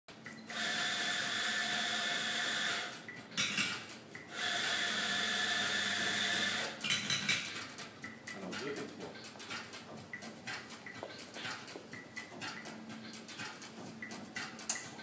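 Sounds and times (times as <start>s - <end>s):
coffee grinder motor whirring: 0.5s - 3.0s, 4.3s - 6.8s.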